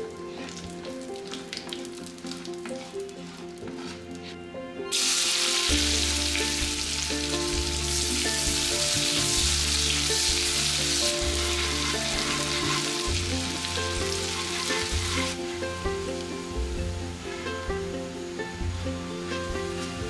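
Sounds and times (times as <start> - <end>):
onions sizzling in hot oil: 4.9 - 20.0.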